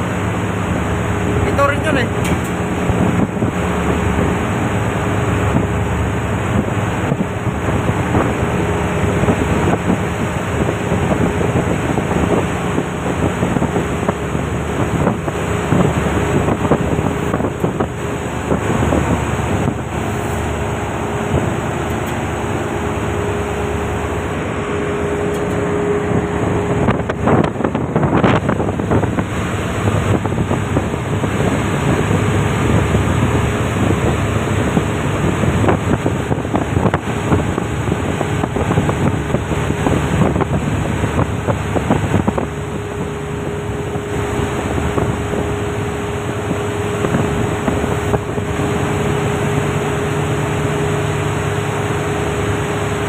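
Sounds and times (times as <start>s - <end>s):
ship engines droning: 0.0s - 53.0s
water rushing along hull: 0.0s - 53.0s
wind buffeting microphone: 0.0s - 53.0s.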